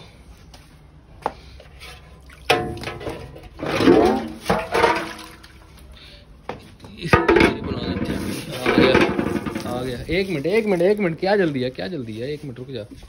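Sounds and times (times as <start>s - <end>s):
metal basin clanking and scraping: 1.7s - 5.9s, 6.6s - 11.4s.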